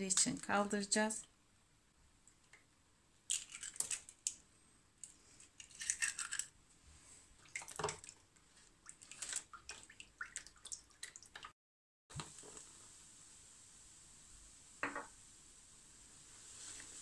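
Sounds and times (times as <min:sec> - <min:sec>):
egg cracking: 0:02.3 - 0:04.4, 0:05.0 - 0:06.6
spatula stirring wet mixture: 0:07.3 - 0:11.5.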